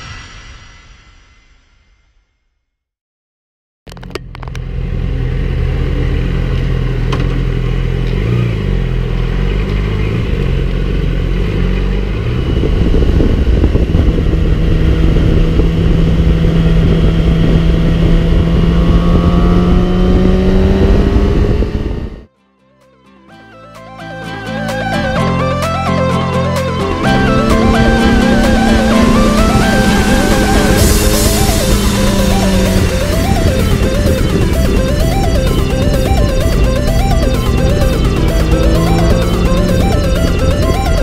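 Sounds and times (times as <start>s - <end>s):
wind rush: 0.0s - 1.8s, 12.2s - 22.3s, 27.0s - 41.0s
motorcycle engine running: 3.9s - 22.3s, 25.0s - 41.0s.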